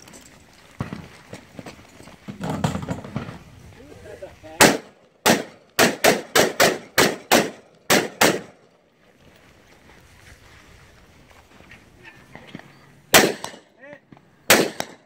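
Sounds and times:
rapid rifle shots: 4.6 - 8.5, 13.1 - 13.6, 14.5 - 15.0.

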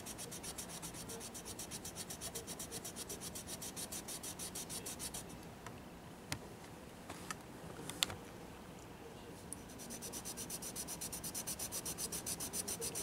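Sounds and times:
pencil scratching on paper: 0.0 - 5.3, 9.7 - 13.0.

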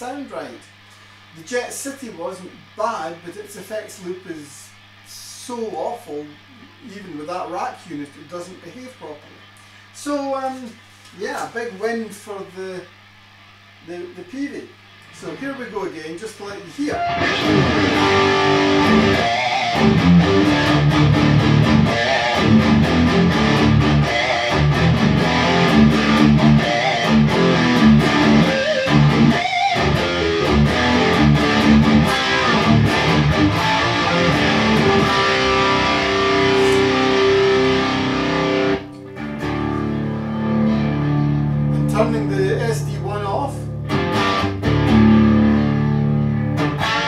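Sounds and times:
distorted electric guitar riff: 16.9 - 47.0.

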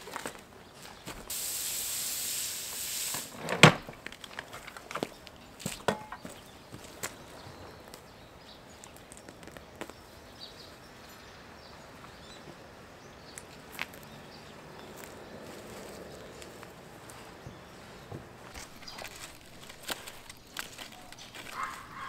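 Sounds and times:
gloved hands scraping soil: 15.0 - 22.0.

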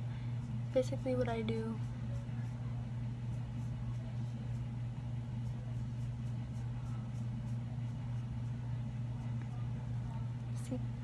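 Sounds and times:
steady low hum: 0.0 - 11.0
brush scratching eyebrow: 3.2 - 4.8, 5.4 - 8.6.

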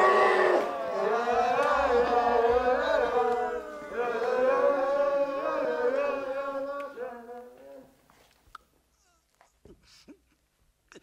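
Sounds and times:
person singing wordless chant: 0.0 - 8.0.

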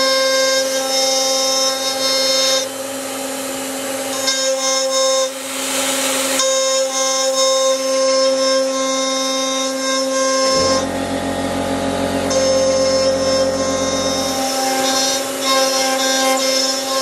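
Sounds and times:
router spindle whining: 0.0 - 17.0
lower hum: 10.3 - 16.7.

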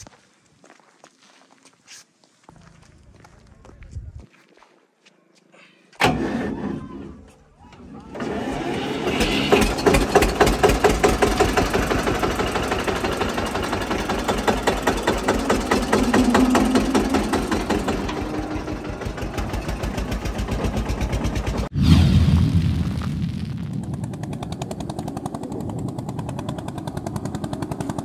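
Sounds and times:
tractor diesel engine running: 7.8 - 21.7, 23.7 - 28.0.

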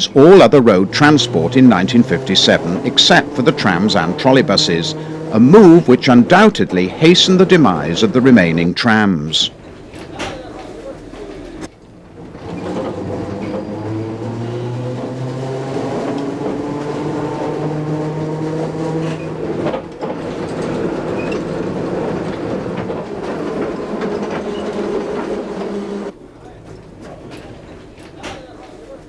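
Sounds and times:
electric tram motor whine: 0.0 - 28.9.

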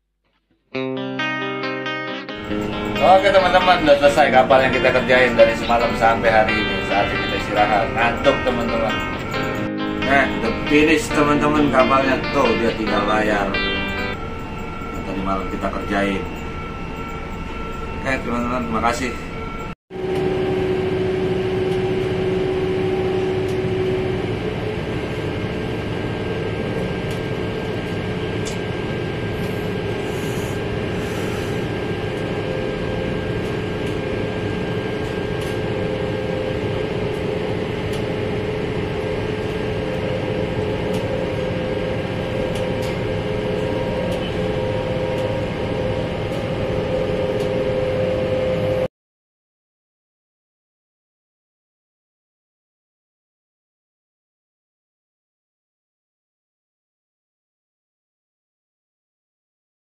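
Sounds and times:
crane machinery drone: 2.4 - 48.9
machinery hum: 2.4 - 48.9.

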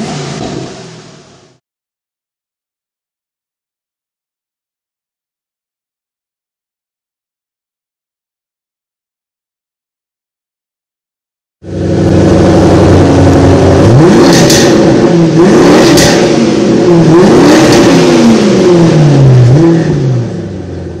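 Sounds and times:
car engine idling and revving: 0.0 - 1.6, 11.6 - 21.0.

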